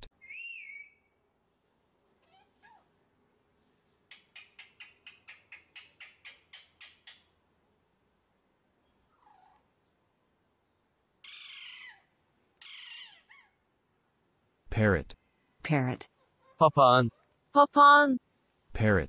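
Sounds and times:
parakeet chirping: 11.2 - 13.6
parakeet harsh screeches: 11.2 - 13.6.

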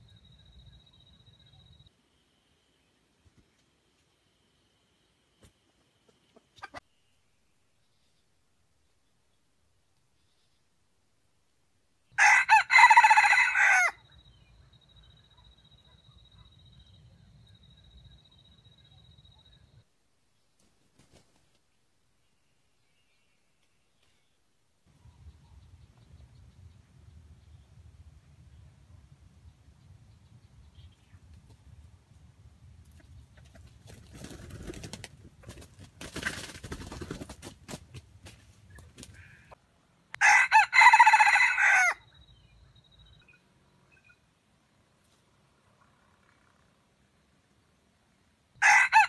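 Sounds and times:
rooster crowing: 12.2 - 14.1, 40.2 - 42.1, 48.6 - 49.0
birds rustling in dry leaves: 33.3 - 39.4.

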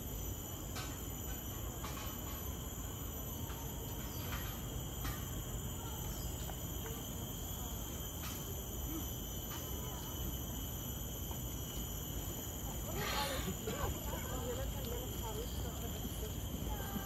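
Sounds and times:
crickets chirping: 0.0 - 17.0
low background hum: 0.3 - 17.0
faint voices of passers-by: 12.5 - 17.0.

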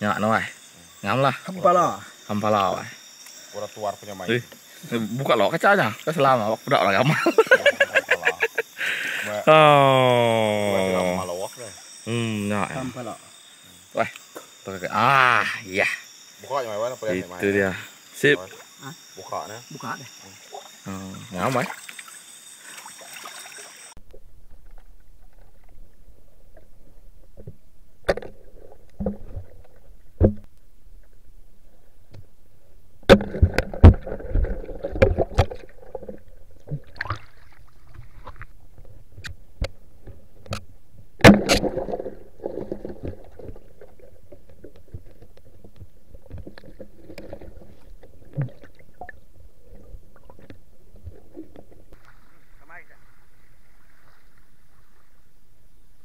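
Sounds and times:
muffled underwater river rumble: 24.0 - 56.0
sharp knocks and clicks: 27.4 - 30.6.

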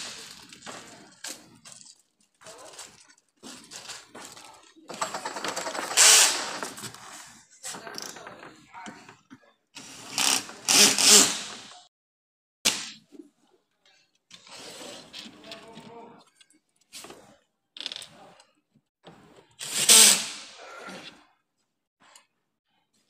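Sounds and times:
plastic sheets rustling and crinkling: 0.0 - 7.9.

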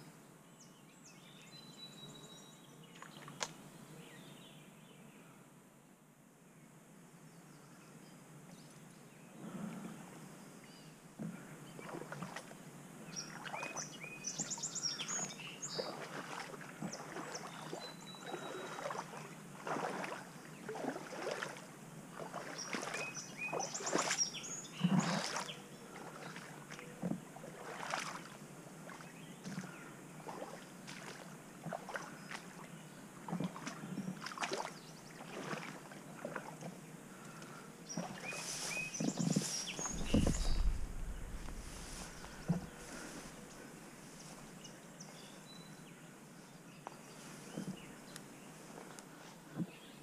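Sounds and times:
songbird singing: 0.0 - 5.4, 6.5 - 50.0
rustling through grass and brush: 37.9 - 44.7.

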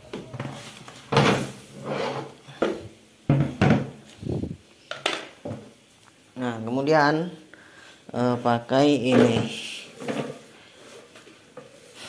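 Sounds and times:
brush and dustpan scraping: 0.3 - 2.8, 9.2 - 12.0.

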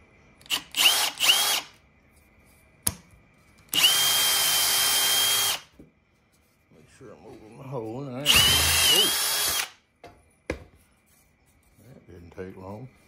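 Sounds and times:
power drill whining: 0.4 - 1.8, 3.7 - 5.7, 8.3 - 9.8.

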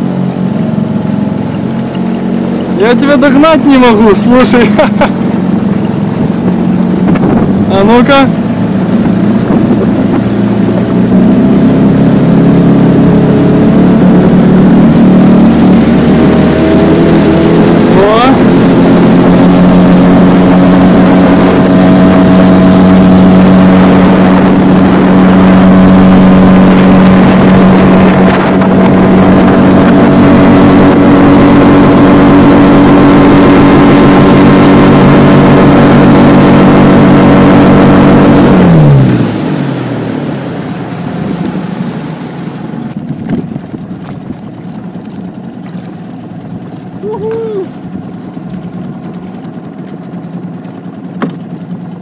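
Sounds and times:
outboard motor running: 0.0 - 52.0
water rushing past hull: 0.0 - 52.0
wind noise: 5.8 - 7.8, 8.6 - 12.5, 18.4 - 38.7, 42.8 - 45.4.

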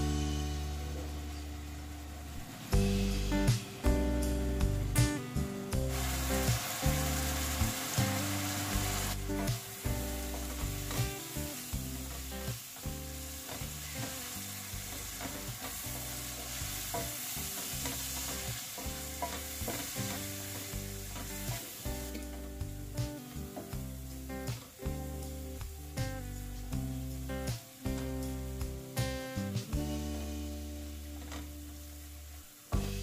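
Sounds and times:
onions sizzling in oil: 0.0 - 33.0.

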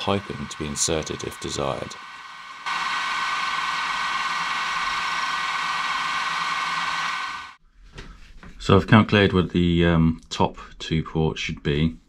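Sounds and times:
hiss: 0.0 - 7.6
milling machine whine: 0.0 - 7.6.

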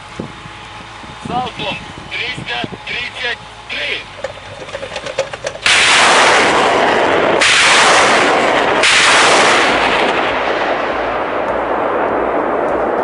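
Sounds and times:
rockets rushing roar: 0.0 - 13.0
rocket launcher blasts: 4.7 - 13.0.

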